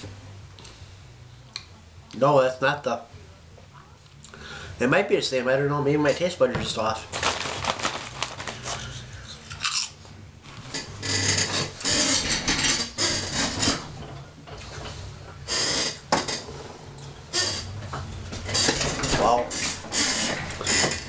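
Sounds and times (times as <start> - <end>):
foil chip bag crinkling: 7.0 - 10.0.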